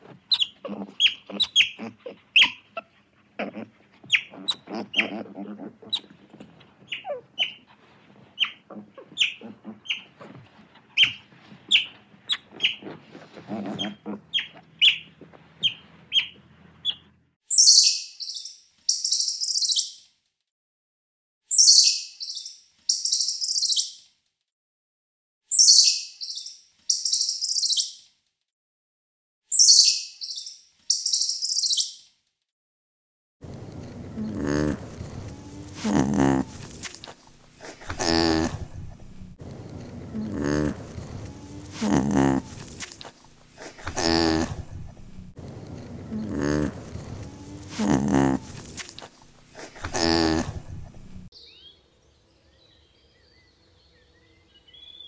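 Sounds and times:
squirrel chattering: 0.3 - 2.6, 34.2 - 39.4, 40.0 - 45.3, 46.1 - 51.3
sea otters squeaking: 0.3 - 5.3, 6.9 - 7.6, 8.4 - 10.1, 11.0 - 12.8, 13.7 - 19.9, 25.6 - 28.0, 29.6 - 32.0, 34.2 - 39.4, 40.2 - 45.3
water lapping: 33.5 - 51.3.

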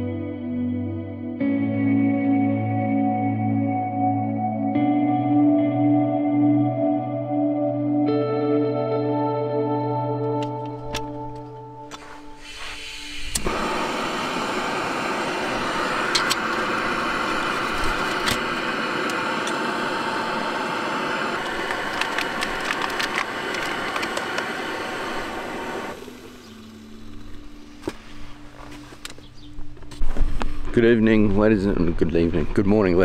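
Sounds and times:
gas stove burner hissing: 11.8 - 29.1
stove and pot clicks: 16.0 - 16.8, 21.4 - 25.0.

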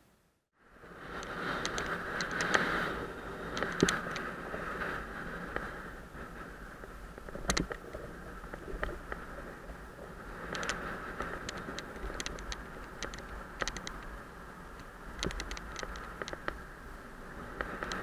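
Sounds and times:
wind rush: 0.6 - 18.0
bicycle tyre noise: 0.8 - 18.0
sharp clicks and rattles: 1.2 - 2.6, 3.5 - 4.3, 7.2 - 7.9, 10.5 - 14.1, 14.8 - 16.6.

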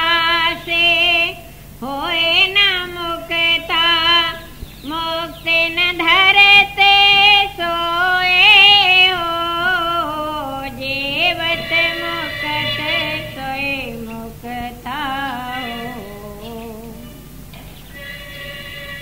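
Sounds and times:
person singing devotional song: 0.0 - 17.4.

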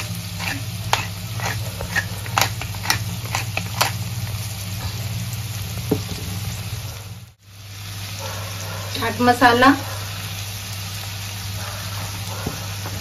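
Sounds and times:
pepper mill grinding clicks: 0.0 - 4.0.

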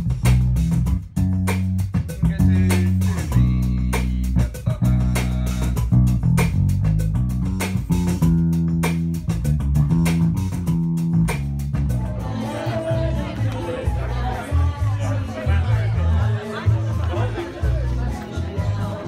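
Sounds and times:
dull bass guitar line: 0.0 - 19.0.

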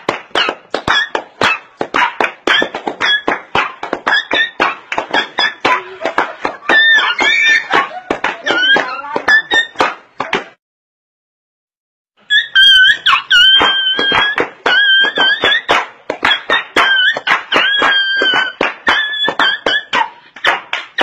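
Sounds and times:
dance music: 0.4 - 9.9.

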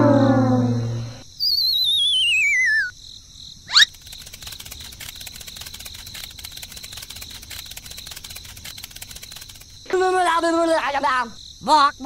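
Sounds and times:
wavering whistle-like tone: 0.0 - 2.9
crickets chirping: 0.0 - 12.0.

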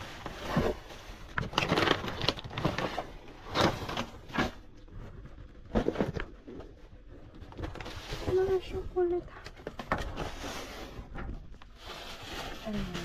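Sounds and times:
plastic bags and cardboard rustling: 0.0 - 13.0.

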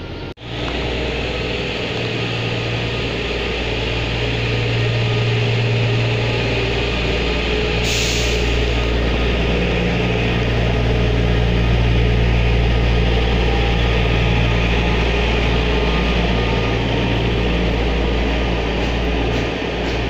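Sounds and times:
diesel engine droning: 0.0 - 20.0.

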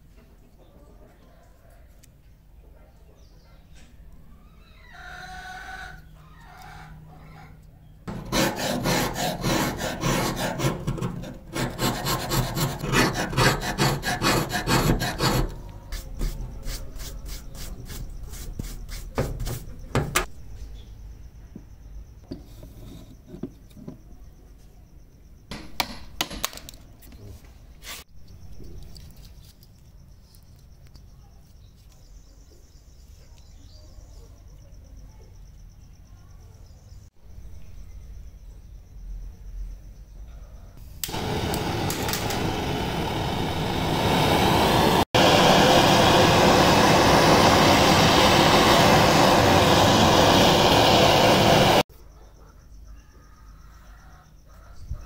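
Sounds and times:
chisel scraping and rubbing: 8.1 - 19.7, 22.3 - 23.6.

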